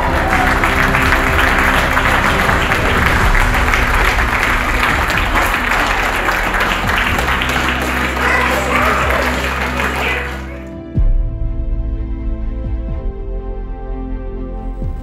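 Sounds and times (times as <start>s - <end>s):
audience applauding: 0.0s - 10.8s
music playing: 0.0s - 15.0s.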